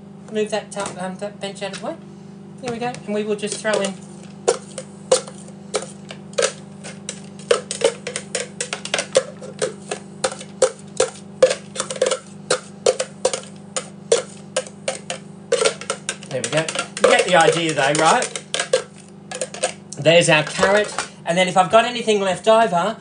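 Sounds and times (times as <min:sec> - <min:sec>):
spatula scraping plastic container: 0:03.5 - 0:19.8, 0:20.4 - 0:21.1.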